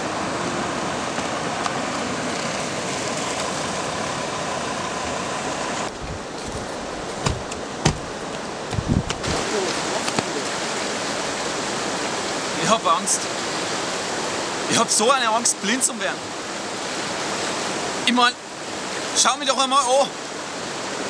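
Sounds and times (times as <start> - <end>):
fast-flowing river rushing: 0.0 - 21.0
dull thumps: 5.9 - 9.4.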